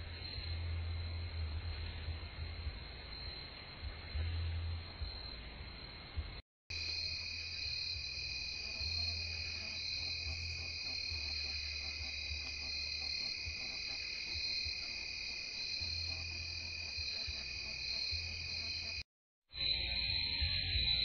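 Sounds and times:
low hum: 0:00.0 - 0:15.0
crickets trilling: 0:00.0 - 0:21.0.

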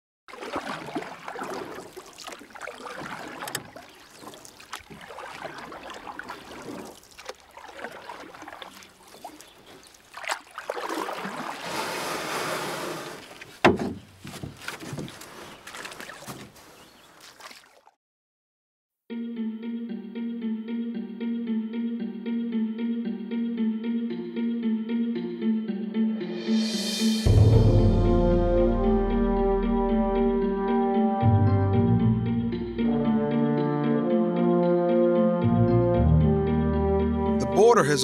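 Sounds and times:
water sloshing and splashing: 0:00.3 - 0:18.0
sharp knocks: 0:13.6 - 0:15.1.

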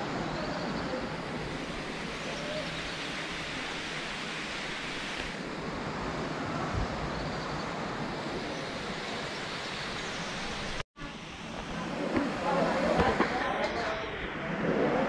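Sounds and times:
water rushing: 0:00.0 - 0:06.6.

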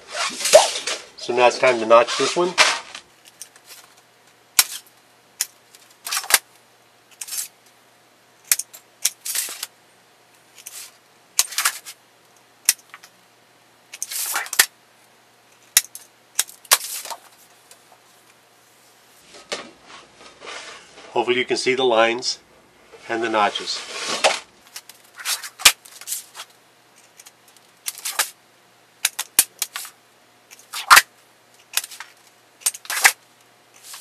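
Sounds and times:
hand snips cutting sheet metal: 0:30.5 - 0:32.0, 0:32.6 - 0:33.2.

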